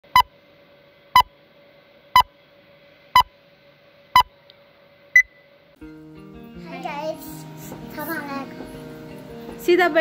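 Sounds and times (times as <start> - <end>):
countdown blips: 0.1 - 0.3.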